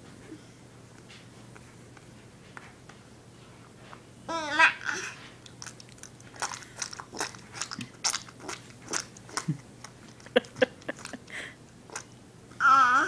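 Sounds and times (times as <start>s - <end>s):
toddler babbling squeal: 12.6s - 13.0s.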